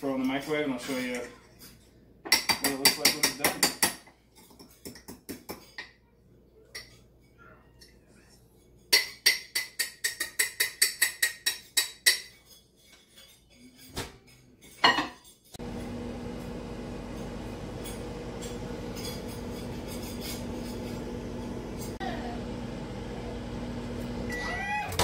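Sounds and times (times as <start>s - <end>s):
microwave oven humming: 15.6s - 25.0s
fork clinking in mug: 17.8s - 22.0s.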